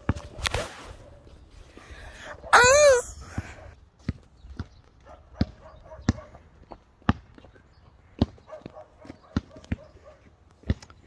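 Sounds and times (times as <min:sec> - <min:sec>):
basketball bouncing on hard ground: 0:04.0 - 0:09.9, 0:10.5 - 0:11.0.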